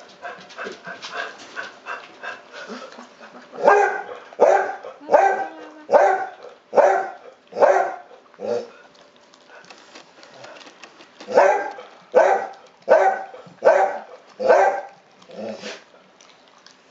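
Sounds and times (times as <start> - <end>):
dog licking and chewing: 0.0 - 16.9
dog barking: 3.6 - 8.7, 11.3 - 15.0.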